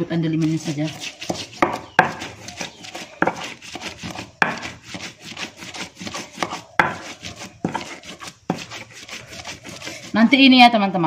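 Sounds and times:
mortar and pestle grinding: 0:00.1 - 0:10.6
pestle knocks: 0:01.3 - 0:02.3, 0:04.1 - 0:04.8, 0:06.4 - 0:07.8.

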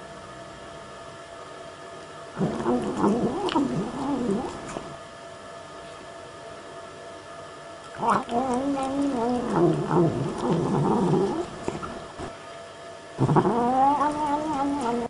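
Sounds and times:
cat meowing: 0:02.4 - 0:04.6, 0:08.0 - 0:11.5, 0:13.2 - 0:15.0.

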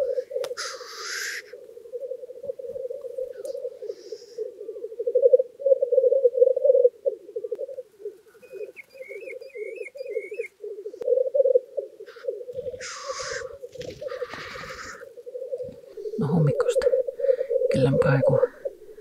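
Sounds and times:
faint bird call: 0:00.0 - 0:19.0
grouse bubbling low cooing: 0:00.0 - 0:19.0
grouse hissing sneeze call: 0:00.6 - 0:01.5, 0:12.8 - 0:13.6.

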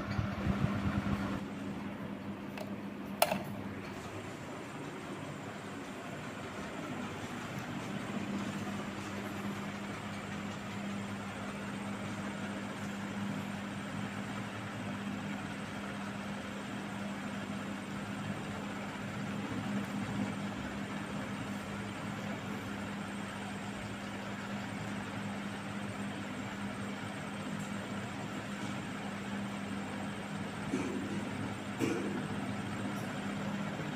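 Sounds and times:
low motor hum: 0:00.0 - 0:15.6
fan air rushing: 0:00.0 - 0:33.9.

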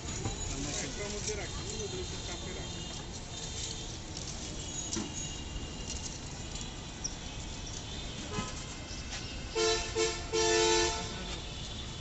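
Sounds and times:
steady background noise: 0:00.0 - 0:12.0
vehicle horn honking: 0:09.5 - 0:12.0.

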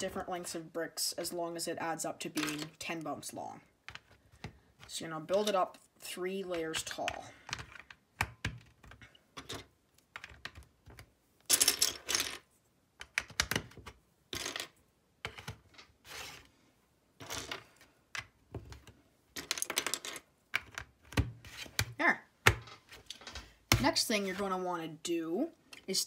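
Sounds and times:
plastic pieces rattling: 0:19.4 - 0:20.8.

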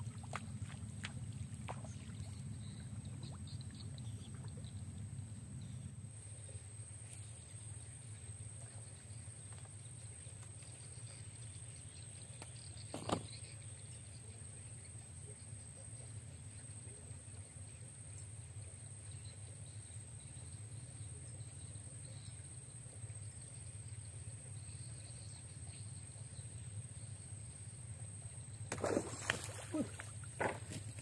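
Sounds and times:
low outdoor rumble: 0:00.0 - 0:11.8.

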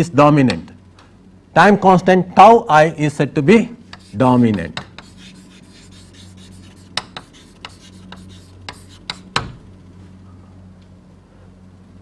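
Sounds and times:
electrical mains hum: 0:00.0 - 0:12.0
pen scratching while writing: 0:05.0 - 0:09.3.

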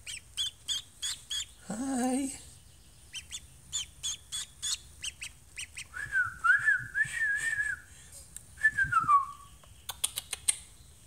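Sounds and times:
duckling peeping: 0:00.0 - 0:06.1.

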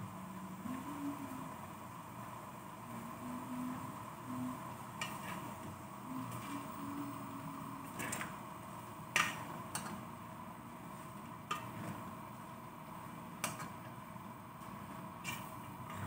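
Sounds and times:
steady background hiss: 0:00.0 - 0:16.0.

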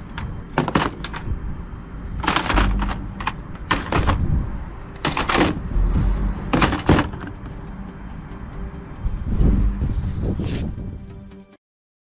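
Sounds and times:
plastic toy guns clattering: 0:00.6 - 0:01.2, 0:02.2 - 0:04.2, 0:05.0 - 0:05.6.

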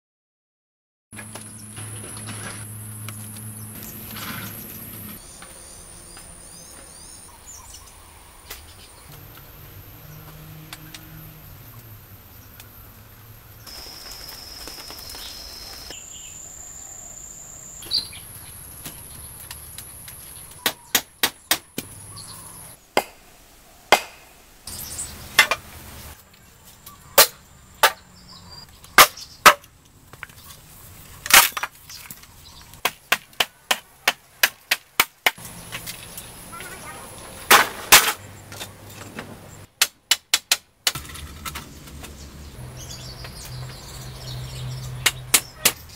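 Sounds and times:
high insect drone: 0:09.1 - 0:20.4.

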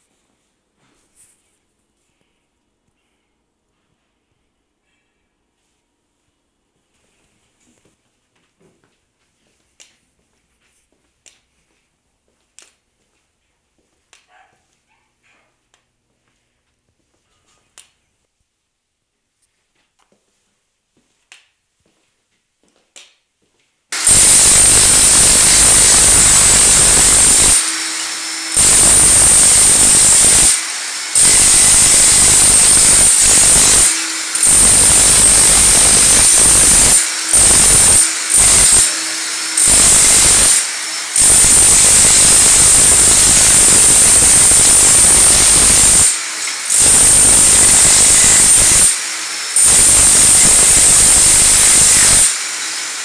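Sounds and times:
power hammer breaking tile: 0:24.0 - 0:52.6.

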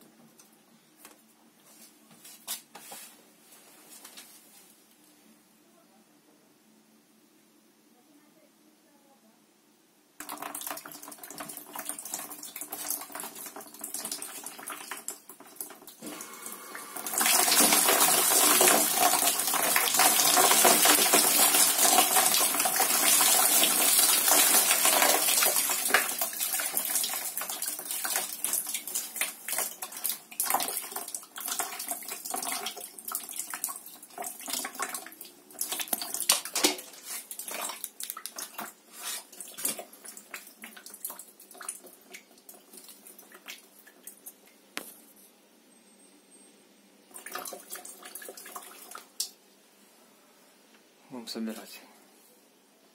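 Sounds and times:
water pouring out of tank: 0:10.2 - 0:44.2, 0:47.1 - 0:49.2.

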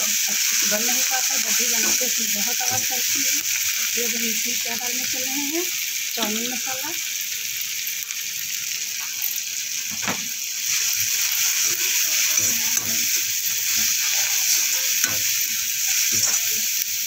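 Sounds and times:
vegetables sizzling in hot oil: 0:00.0 - 0:17.0
spatula scraping and knocking pan: 0:11.5 - 0:16.6.

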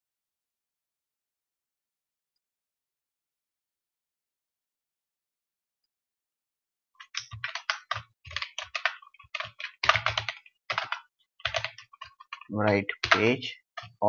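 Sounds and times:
keyboard typing: 0:07.0 - 0:14.0.

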